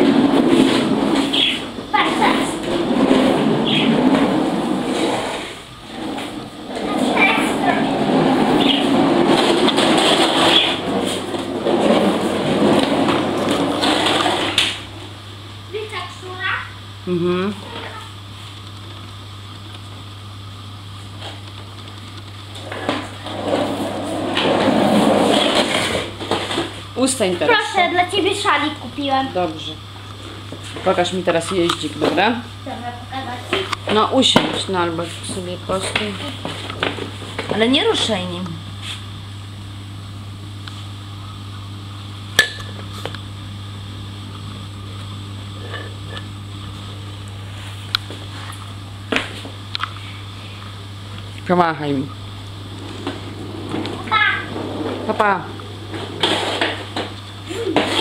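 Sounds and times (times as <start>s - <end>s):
plastic wheels rolling on wooden floor: 0.0s - 15.0s, 21.2s - 28.5s, 33.2s - 38.2s, 52.7s - 58.0s
low steady hum: 0.0s - 58.0s.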